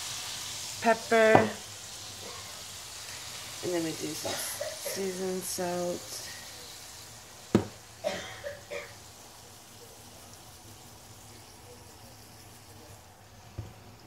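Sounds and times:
faint steady hiss: 0:00.0 - 0:14.0
sharp knock: 0:07.5 - 0:07.7.

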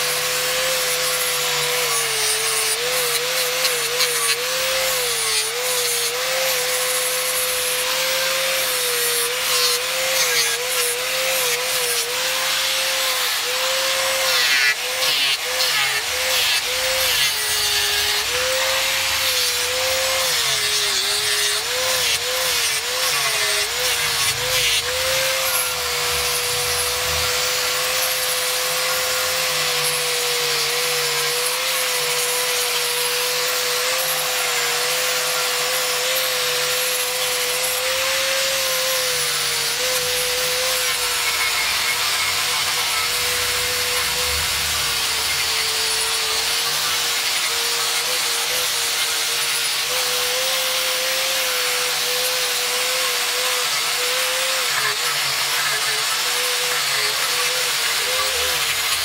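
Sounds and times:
angle grinder motor whine: 0:00.0 - 0:59.0.

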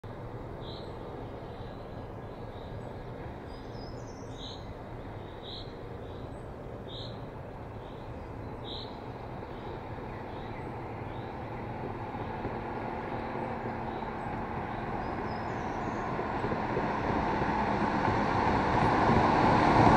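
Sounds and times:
bird chirping: 0:01.6 - 0:07.2, 0:07.8 - 0:12.4, 0:13.3 - 0:16.2.

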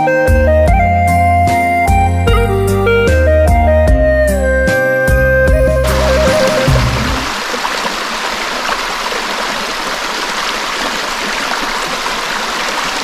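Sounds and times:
creek running over stones: 0:05.8 - 0:13.0.

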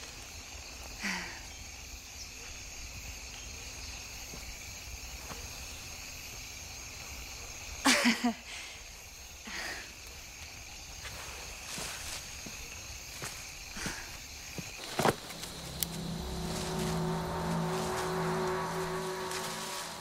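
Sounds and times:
insect chorus chirring: 0:00.0 - 0:20.0
short loud pitched pulses: 0:15.2 - 0:20.0.

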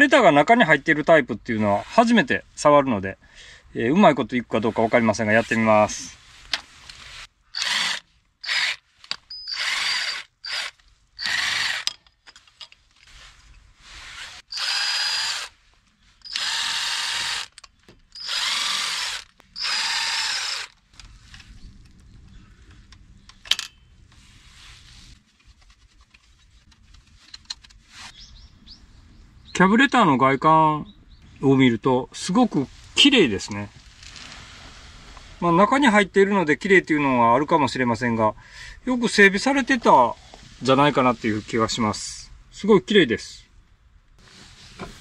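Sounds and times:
cordless power driver whirring: 0:07.6 - 0:08.8, 0:09.4 - 0:11.9, 0:14.2 - 0:15.5, 0:16.3 - 0:17.6, 0:18.2 - 0:21.1.

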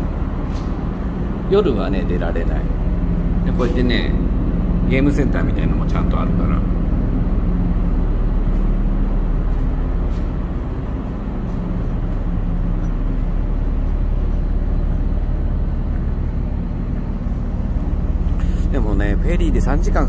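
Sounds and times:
ship engines rumbling: 0:00.0 - 0:20.0.

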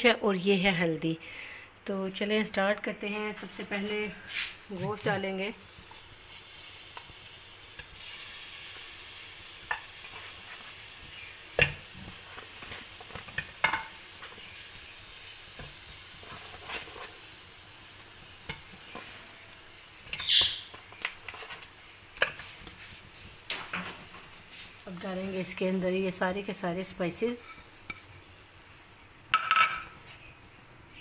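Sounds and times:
steady background hiss: 0:00.0 - 0:31.0
clatter in pot: 0:29.3 - 0:30.0.

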